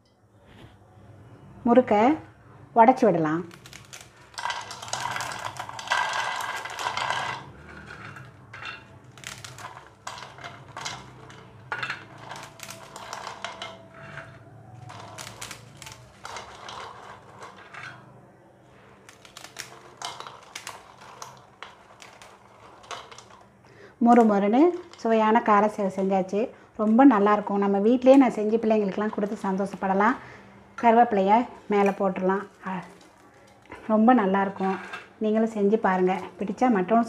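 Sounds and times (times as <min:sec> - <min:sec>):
crunchy crackling snack: 0:03.5 - 0:17.8, 0:19.0 - 0:23.4.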